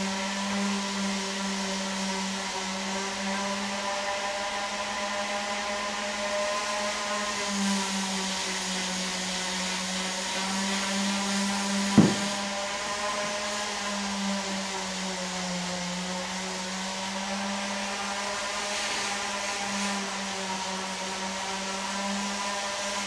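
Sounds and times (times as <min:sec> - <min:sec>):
electric motor hum with hiss: 0:00.0 - 0:23.0
sharp knock: 0:12.0 - 0:12.4.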